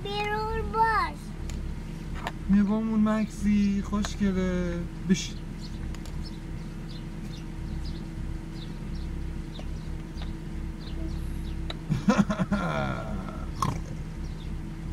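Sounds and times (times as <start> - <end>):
steady low hum: 0.0 - 14.9
faint chirps: 6.2 - 11.8.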